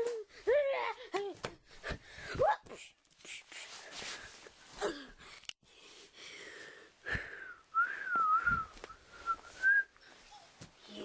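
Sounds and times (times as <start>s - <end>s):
person whistling: 7.5s - 10.0s.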